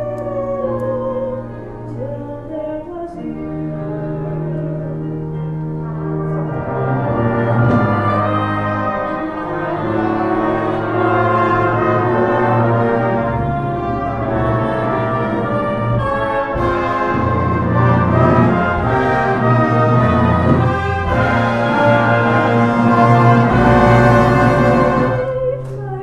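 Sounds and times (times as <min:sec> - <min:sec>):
brass-led orchestra dance music: 0:05.8 - 0:25.3.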